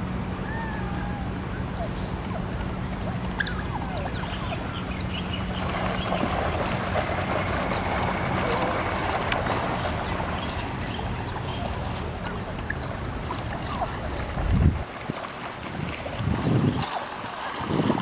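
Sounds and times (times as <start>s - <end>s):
water splashing and churning: 0.0s - 18.0s
otters chirping: 1.8s - 6.7s, 9.7s - 14.1s.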